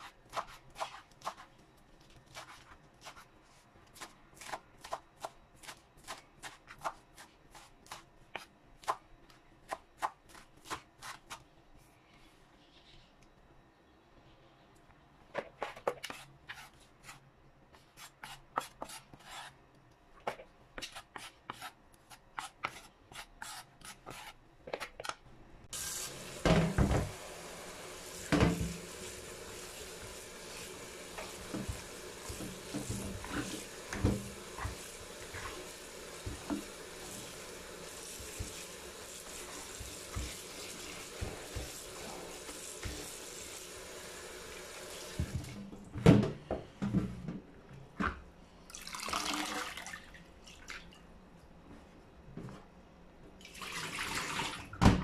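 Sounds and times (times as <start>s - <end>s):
tap water running: 25.7s - 45.7s, 48.7s - 50.8s, 53.4s - 54.8s.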